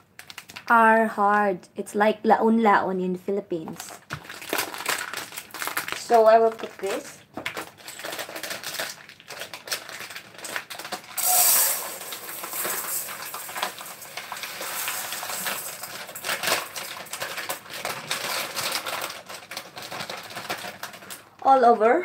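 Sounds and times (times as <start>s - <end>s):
plastic bag crinkling: 0.0s - 0.8s, 3.7s - 21.5s
rice grains pouring into metal pot: 11.2s - 17.2s.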